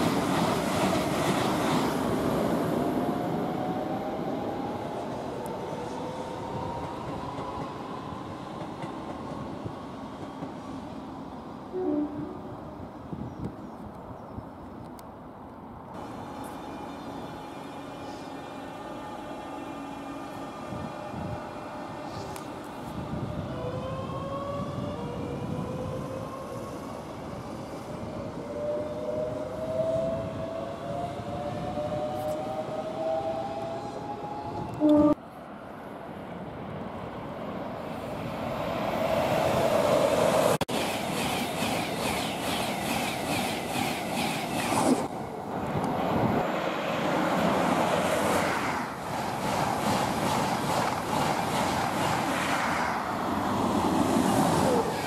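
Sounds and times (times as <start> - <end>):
train rushing past: 36.5 - 55.0.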